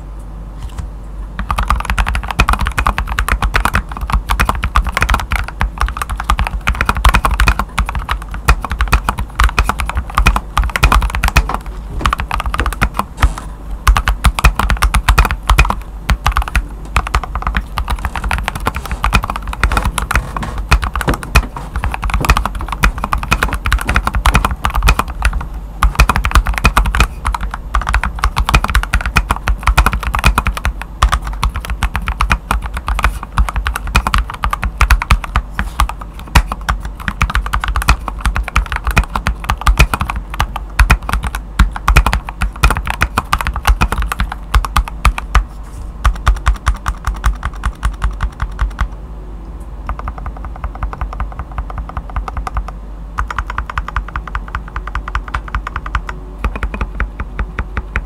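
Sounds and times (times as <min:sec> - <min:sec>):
mechanical keyboard typing: 0:01.4 - 0:49.0, 0:49.9 - 0:58.0.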